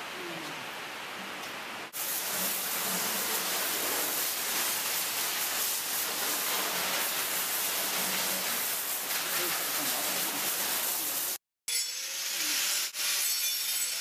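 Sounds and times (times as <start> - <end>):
water spraying from garden hose: 1.9 - 11.4.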